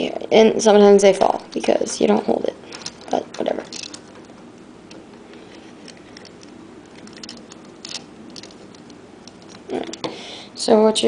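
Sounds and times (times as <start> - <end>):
low steady hum: 0.0 - 11.0
plastic puzzle pieces clicking: 2.7 - 4.3, 5.8 - 10.1.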